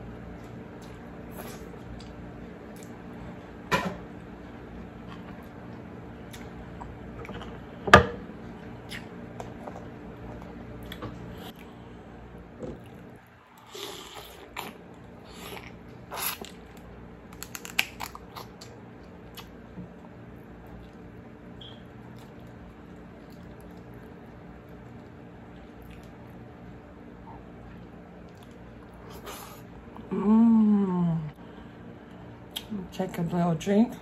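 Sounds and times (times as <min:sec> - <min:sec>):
wet chewing and smacking: 0:12.7 - 0:26.4, 0:27.3 - 0:29.3.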